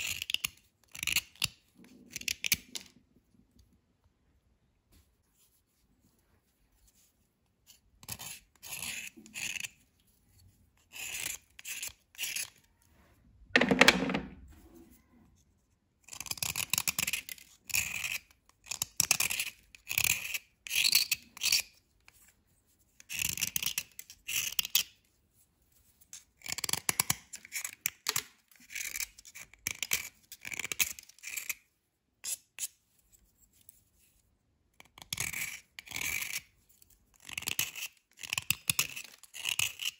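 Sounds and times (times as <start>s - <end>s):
knife scraping dry bar: 0.0s - 2.9s, 6.8s - 12.7s, 16.0s - 22.3s, 34.9s - 39.9s.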